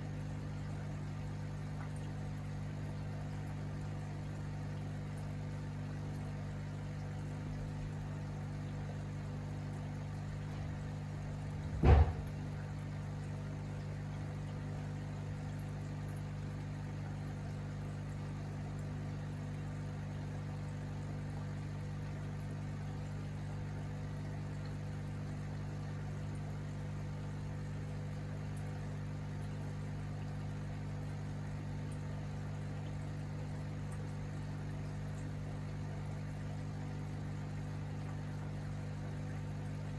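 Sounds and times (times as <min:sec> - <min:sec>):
aquarium air pump humming: 0:00.0 - 0:39.9
faint bubbling water: 0:00.0 - 0:39.9
loud thump: 0:11.7 - 0:12.3.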